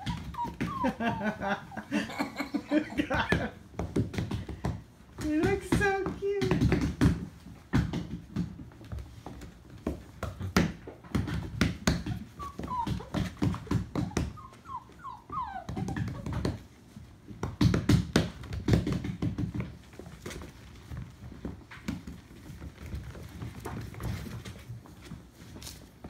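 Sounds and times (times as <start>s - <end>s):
puppies whimpering and squeaking: 0.0s - 3.4s, 11.9s - 17.0s
paws scuffling on hardwood floor: 0.0s - 26.0s.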